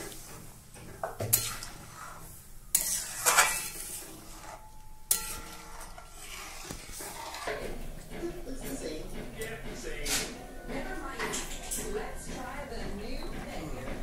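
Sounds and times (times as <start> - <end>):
metal spoon scraping a pan: 0.0 - 14.0
spoon clinking on pan: 4.6 - 6.0.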